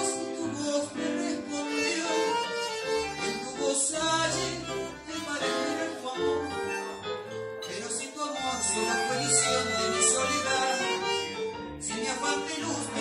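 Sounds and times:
bandoneon playing: 0.0 - 13.0
keyboard playing: 0.0 - 13.0.

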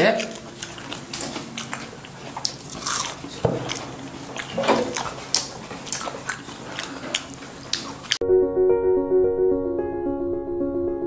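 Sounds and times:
crunchy food being chewed: 0.0 - 8.2.

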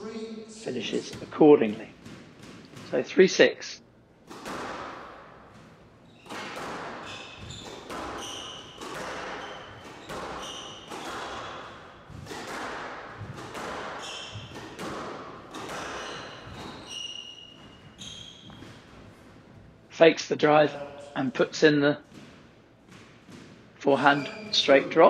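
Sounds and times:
squash ball hits echoing: 1.0 - 3.0, 4.2 - 19.4, 22.0 - 23.8
shoes squeaking on wooden floor: 5.5 - 12.6, 13.2 - 19.8, 22.0 - 24.8.

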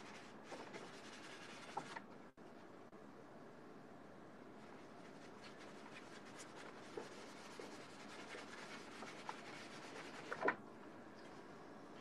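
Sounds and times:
paintbrush rubbing on canvas: 0.0 - 1.9, 5.0 - 10.4.

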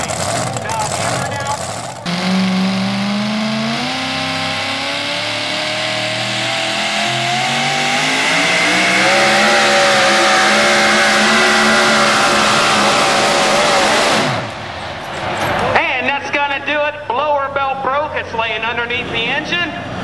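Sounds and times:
truck engine at full throttle: 0.0 - 15.8.

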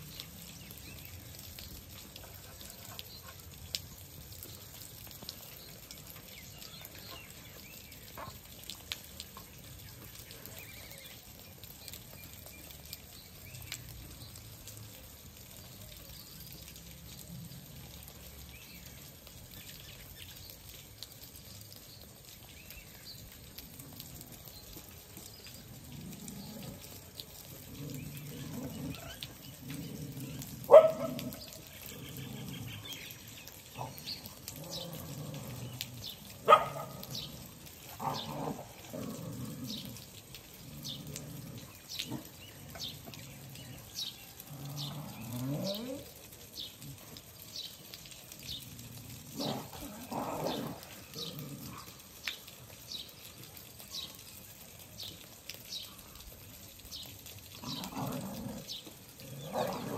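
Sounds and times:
dogs growling and snarling: 25.8 - 32.9, 33.8 - 43.7, 44.4 - 46.1, 48.5 - 52.0, 57.6 - 59.9
dog yelps: 30.6 - 31.3.

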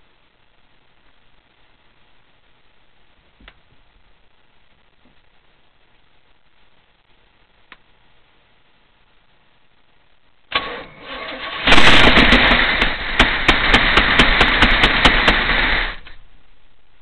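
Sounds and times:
starter motor cranking: 10.5 - 16.1
loud engine running: 10.6 - 16.1.

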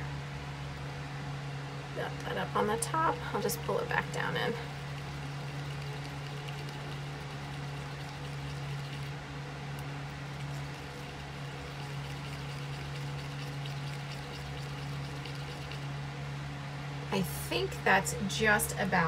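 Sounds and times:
steady low hum: 0.0 - 19.0
stick stirring thick liquid: 4.7 - 9.2, 10.1 - 16.0.

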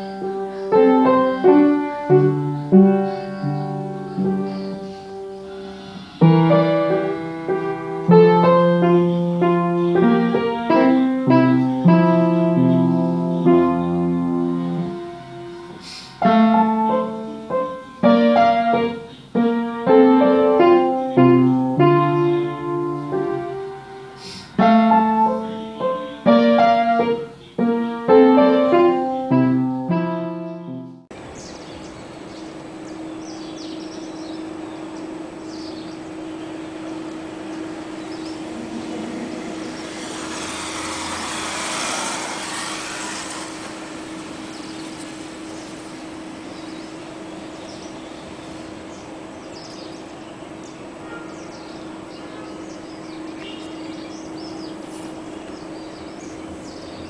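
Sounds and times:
solo piano melody: 0.0 - 31.2, 34.5 - 41.3
low hum: 36.0 - 47.6.

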